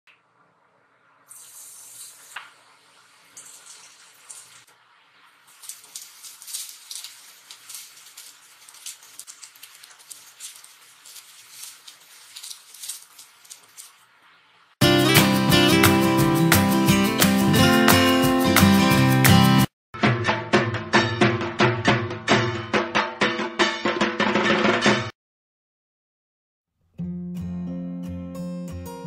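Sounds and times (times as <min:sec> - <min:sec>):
hot oil sizzling and crackling: 0:00.2 - 0:14.8.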